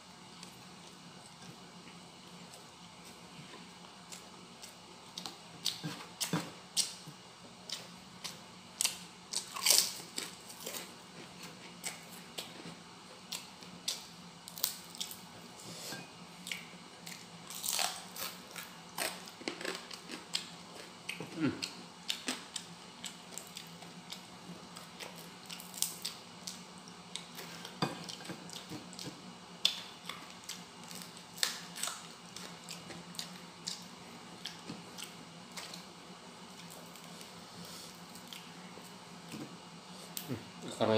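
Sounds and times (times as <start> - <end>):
low steady hum: 0.0 - 40.9.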